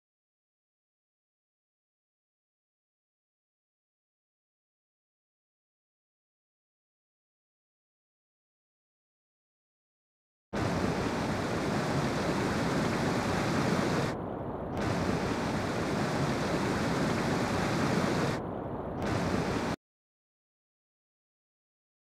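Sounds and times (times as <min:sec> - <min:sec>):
underwater rushing water: 0:10.6 - 0:19.8.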